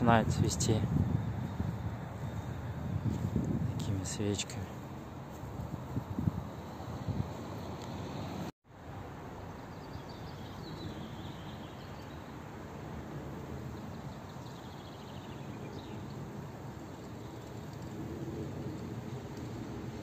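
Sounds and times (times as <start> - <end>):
small birds singing: 0.0 - 4.6, 9.4 - 12.4, 13.7 - 17.9.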